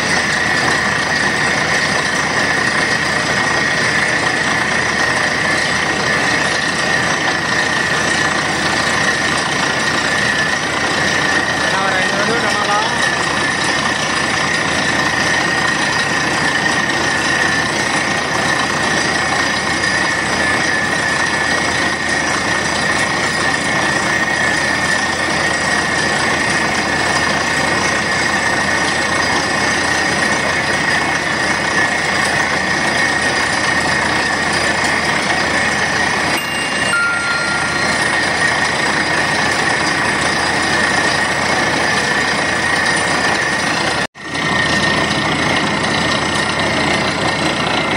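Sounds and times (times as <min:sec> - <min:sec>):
drilling rig running: 0:00.0 - 0:47.9
high-pitched whine: 0:35.2 - 0:45.0.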